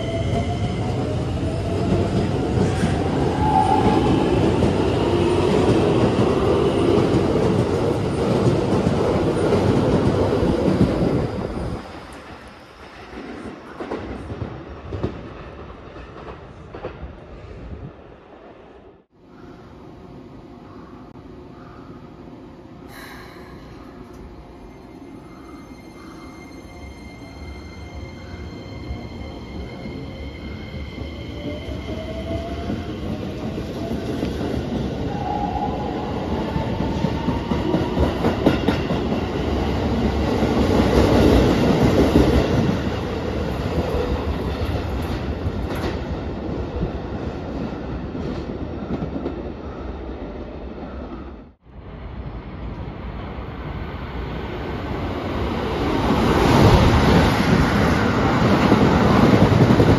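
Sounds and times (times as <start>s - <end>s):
train passing through: 0.0s - 59.9s
train wheels clattering on rails: 36.6s - 46.2s.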